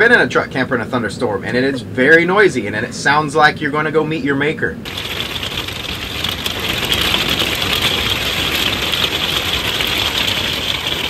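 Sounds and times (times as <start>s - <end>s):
low rumble: 4.8s - 11.0s
wind and rain on canvas: 4.8s - 11.0s.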